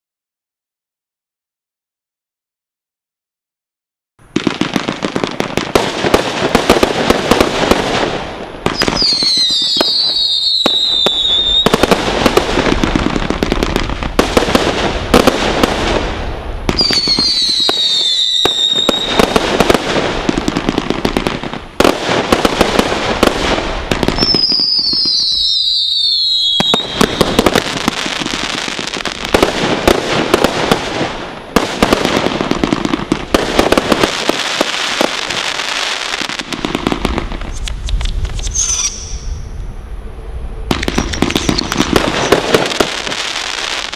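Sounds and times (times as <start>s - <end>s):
fireworks pops and crackling bangs: 4.3s - 39.5s, 40.7s - 43.9s
whistle falling in pitch: 38.4s - 39.4s.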